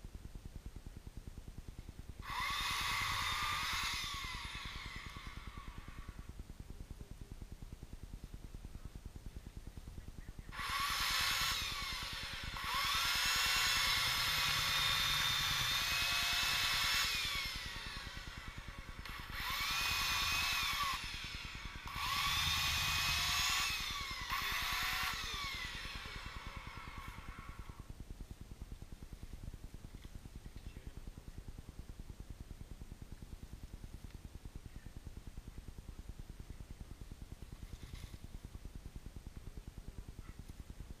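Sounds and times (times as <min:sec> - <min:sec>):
power saw cutting: 0:02.2 - 0:05.4, 0:10.6 - 0:27.4.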